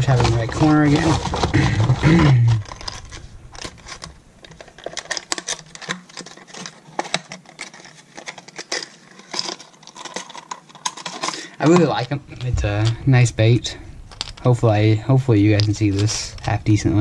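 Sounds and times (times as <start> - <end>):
plastic package crinkling and clicking: 0.0 - 13.1.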